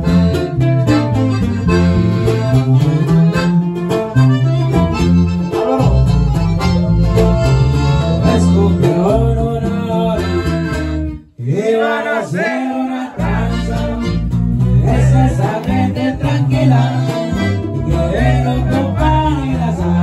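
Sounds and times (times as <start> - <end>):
button accordion: 0.0 - 11.4, 13.2 - 20.0
electric bass: 0.0 - 11.4, 13.2 - 20.0
twelve-string acoustic guitar: 0.0 - 20.0
person singing: 5.4 - 10.6, 11.4 - 20.0.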